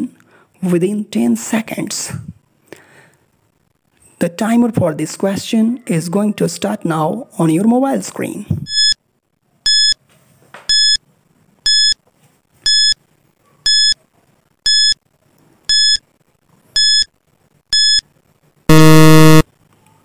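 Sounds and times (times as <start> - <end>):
short high-pitched beeps: 8.7 - 9.0, 9.7 - 10.0, 10.7 - 11.0, 12.7 - 13.0, 13.7 - 14.0, 14.7 - 15.0, 15.7 - 16.0, 16.8 - 17.1, 17.7 - 18.0, 18.7 - 19.4
low buzzer: 18.7 - 19.4.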